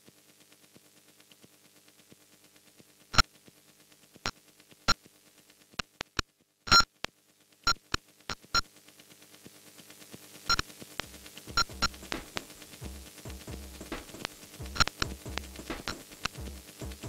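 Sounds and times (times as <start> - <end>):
sharp electronic clicks: 6.0 - 6.9, 11.5 - 12.6, 14.0 - 16.4
faint hum: 7.6 - 17.0
rapid ticking pulse: 10.5 - 17.0.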